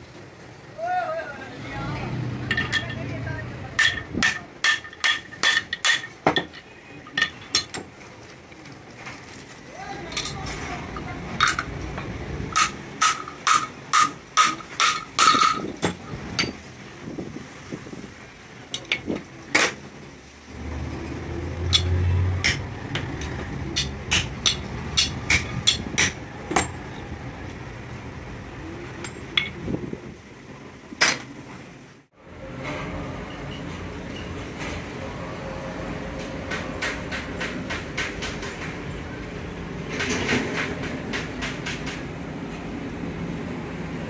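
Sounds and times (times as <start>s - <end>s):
hammer striking metal: 3.8s - 7.8s, 12.5s - 16.6s, 21.7s - 26.8s.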